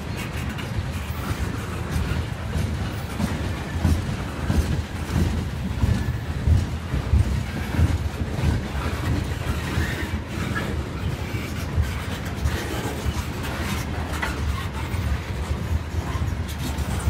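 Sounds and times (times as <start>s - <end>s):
freight train rumbling past: 0.0s - 17.0s
wheels thumping on rails: 0.0s - 17.0s.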